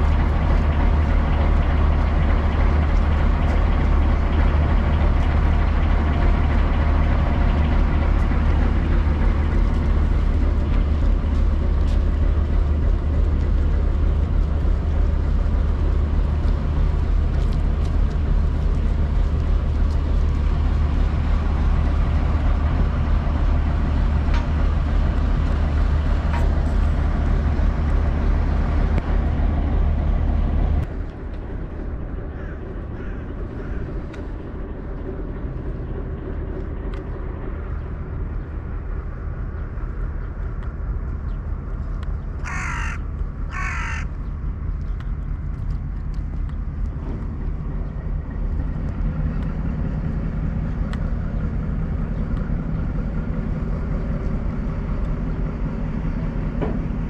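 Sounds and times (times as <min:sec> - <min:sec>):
boat diesel engine idling: 0:00.0 - 0:57.0.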